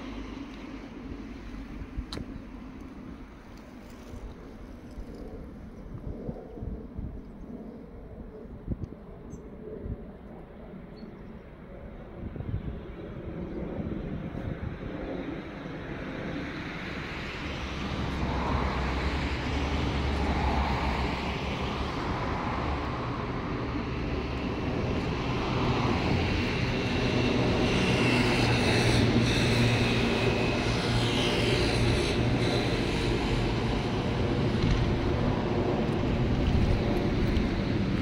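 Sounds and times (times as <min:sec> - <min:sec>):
passing vehicle engine and road noise: 0:14.6 - 0:38.0.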